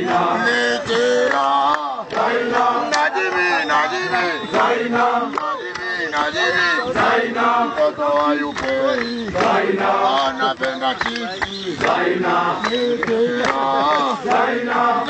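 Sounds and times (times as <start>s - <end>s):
people singing in chorus: 0.0s - 15.0s.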